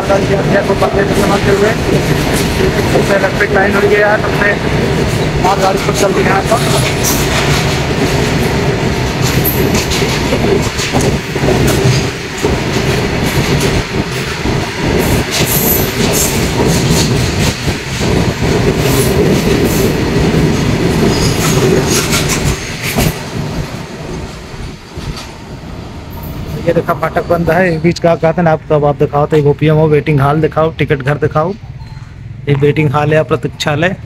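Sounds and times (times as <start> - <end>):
train wheels clattering over rail joints: 0.8 - 3.2, 4.6 - 25.4.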